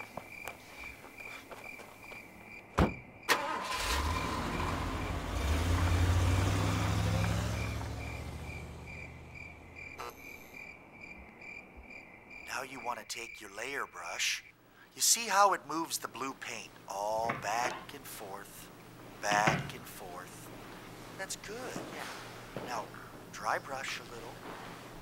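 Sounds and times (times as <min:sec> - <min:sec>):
crickets chirping: 0:00.0 - 0:17.3
car door thumping shut: 0:02.8 - 0:03.0
car engine starting and pulling away: 0:03.3 - 0:10.0.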